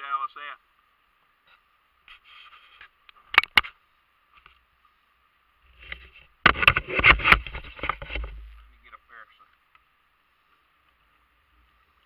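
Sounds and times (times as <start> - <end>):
clatter of knocks and rumbling: 6.4 - 8.5.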